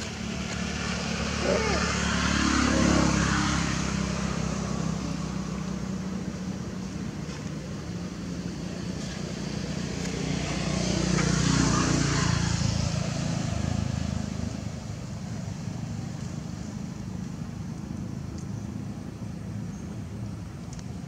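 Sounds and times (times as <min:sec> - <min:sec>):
vehicle passing: 0:00.0 - 0:06.5, 0:08.4 - 0:14.9.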